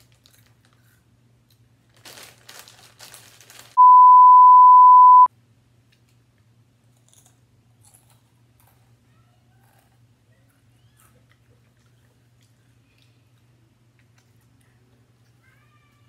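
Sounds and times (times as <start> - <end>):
chip bag rustling: 1.9 - 3.8
censor bleep: 3.8 - 5.3.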